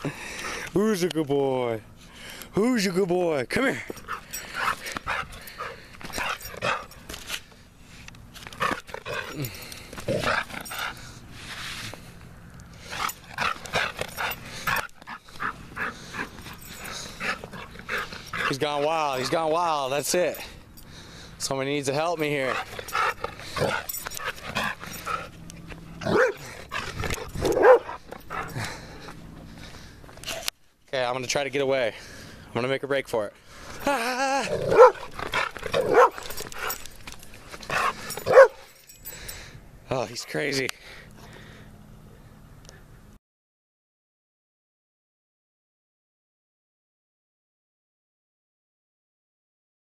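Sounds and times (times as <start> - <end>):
dog barking: 26.0 - 26.5, 27.4 - 28.0, 34.7 - 35.1, 35.8 - 36.2, 38.2 - 38.6.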